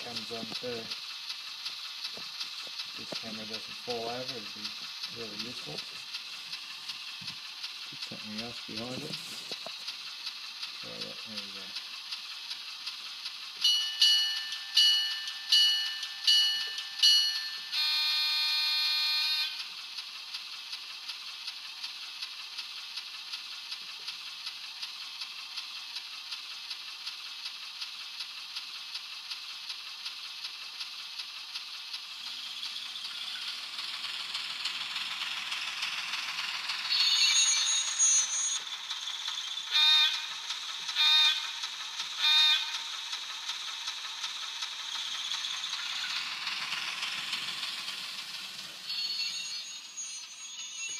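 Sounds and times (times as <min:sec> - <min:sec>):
faint regular ticks: 0:00.0 - 0:13.7, 0:19.5 - 0:49.3
hissy diesel engine sound: 0:00.0 - 0:50.9
bell rings: 0:13.6 - 0:19.6, 0:48.9 - 0:50.9.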